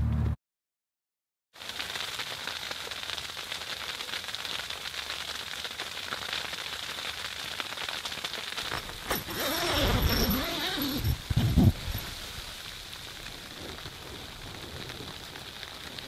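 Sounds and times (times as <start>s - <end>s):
sleet pattering on tent fabric: 8.6s - 12.8s.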